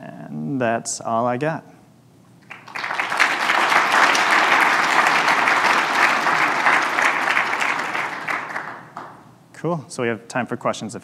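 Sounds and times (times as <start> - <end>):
audience applauding: 2.4 - 9.2.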